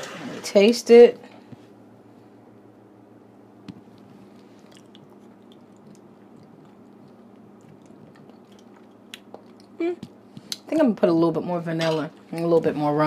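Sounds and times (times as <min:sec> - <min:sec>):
low steady hum: 0:00.0 - 0:13.0
lip smacks and mouth clicks: 0:03.7 - 0:10.7.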